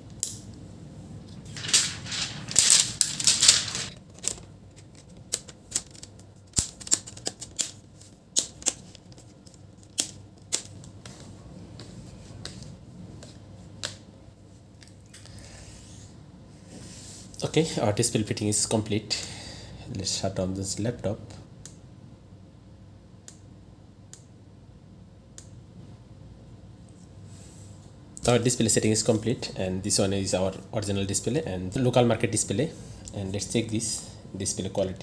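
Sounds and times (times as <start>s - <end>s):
plastic film crinkling: 1.5s - 7.7s.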